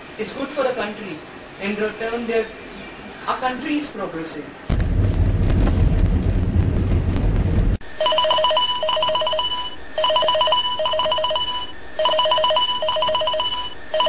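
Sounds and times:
low rumble: 4.7 - 7.8
phone ringtone beeping tune: 8.0 - 14.0.

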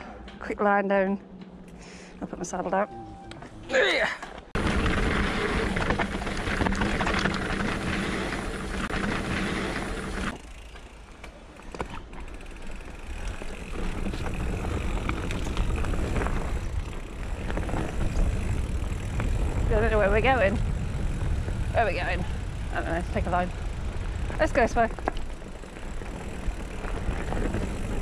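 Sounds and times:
bike tyres rumbling on dirt: 4.6 - 28.0
steady hum with low tones: 13.2 - 28.0.

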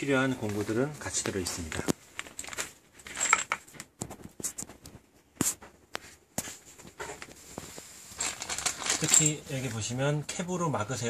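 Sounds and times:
plastic parts set on wooden floor: 1.2 - 3.8, 7.0 - 9.4.

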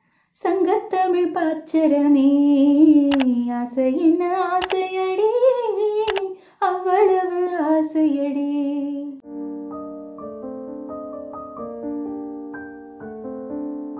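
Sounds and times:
woman singing unaccompanied: 0.4 - 9.2
soft piano chords: 9.2 - 13.9.

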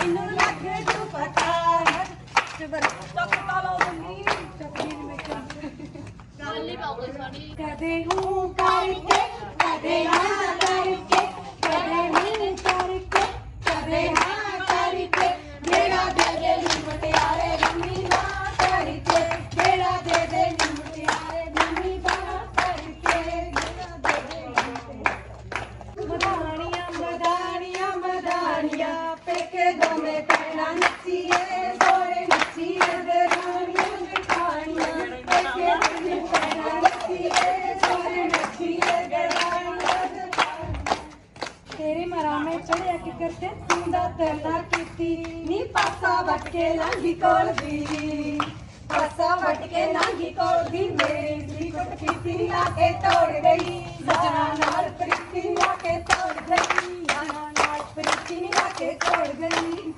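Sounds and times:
women singing in unison: 0.0 - 6.0, 7.5 - 24.8, 25.9 - 59.9
hands clapping in rhythm: 0.0 - 6.3, 7.8 - 59.9
sharp hand claps: 52.0 - 59.9.

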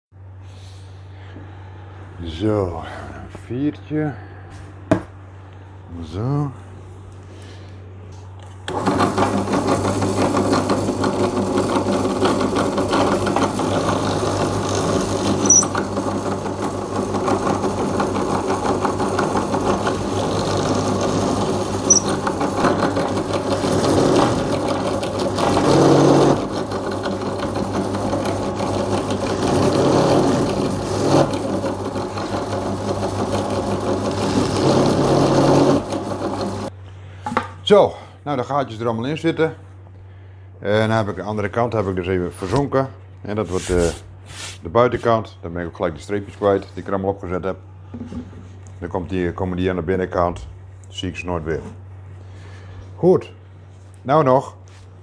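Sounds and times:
drill press boring holes: 8.6 - 36.7.

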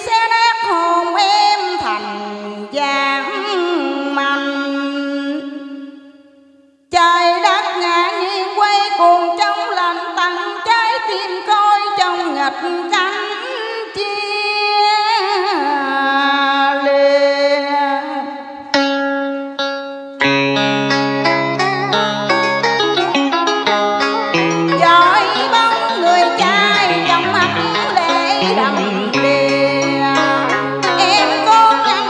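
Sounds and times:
woman singing into microphone: 0.0 - 6.0, 6.9 - 18.6, 24.3 - 32.0
karaoke backing with plucked strings: 0.0 - 32.0.

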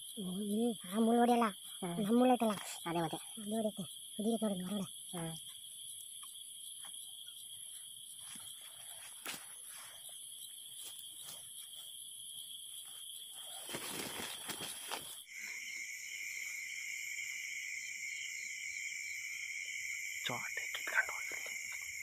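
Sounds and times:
insects trilling: 0.0 - 22.0
rustling and scraping: 7.7 - 12.0, 12.7 - 15.2.

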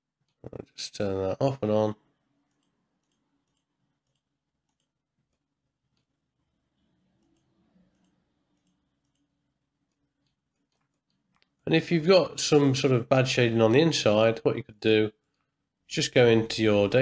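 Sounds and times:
computer mouse clicks: 2.4 - 6.2, 7.1 - 11.6.

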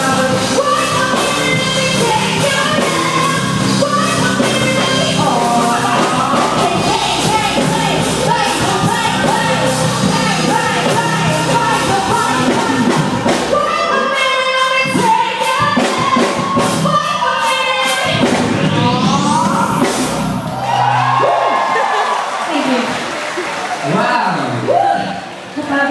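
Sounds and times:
person singing: 0.0 - 20.1
live band playing pop song: 0.0 - 22.9
rising sweep: 18.2 - 22.0.

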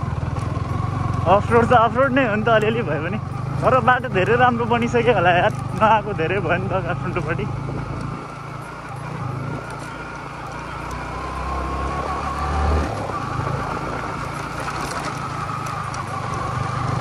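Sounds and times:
motorcycle engine running: 0.0 - 17.0
small rattling clicks: 5.4 - 6.0, 14.3 - 16.5.

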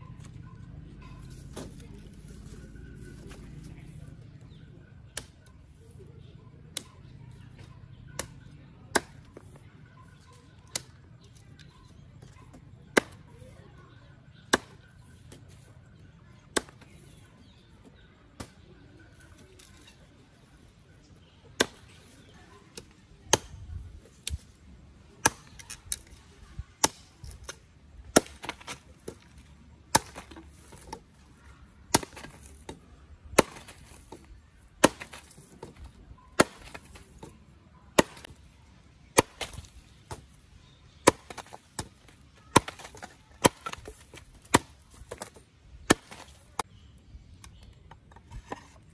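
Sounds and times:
machete chopping on wooden block: 26.8 - 31.0, 31.9 - 37.3, 37.9 - 38.4, 39.2 - 40.3, 41.0 - 46.7.

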